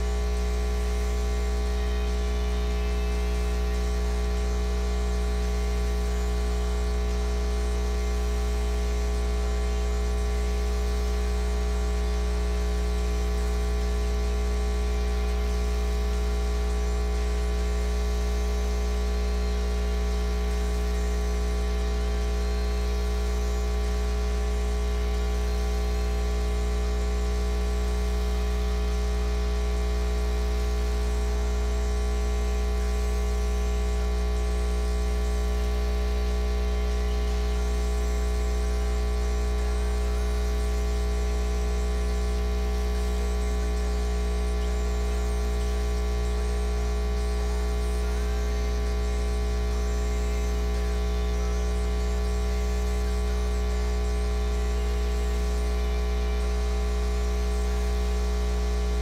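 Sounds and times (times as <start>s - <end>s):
mains hum and buzz: 0.0s - 59.0s.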